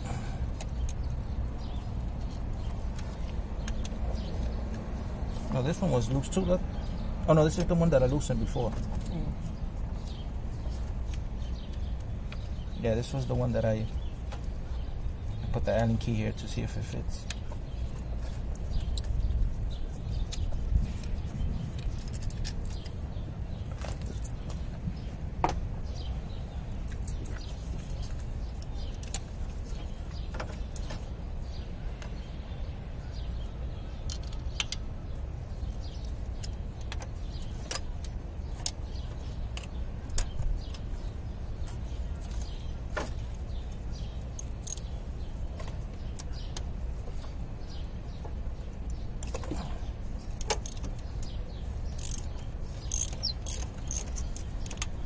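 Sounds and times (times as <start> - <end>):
bird chirping: 0.0 - 55.0
ratchet clicking on metal: 50.4 - 51.0, 51.9 - 55.0.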